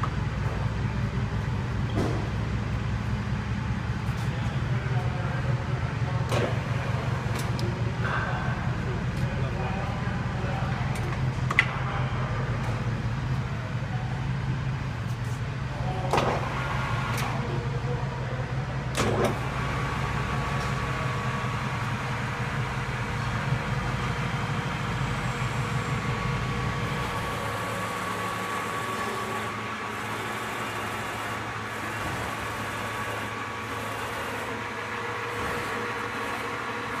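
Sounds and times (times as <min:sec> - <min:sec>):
lathe low hum: 0:00.0 - 0:37.0
lathe high whine: 0:19.4 - 0:37.0.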